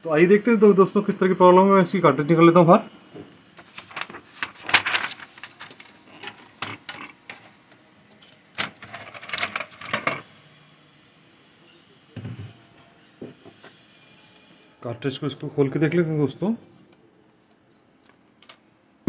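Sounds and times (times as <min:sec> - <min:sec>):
plastic clicks and clatter: 0:04.8 - 0:07.4.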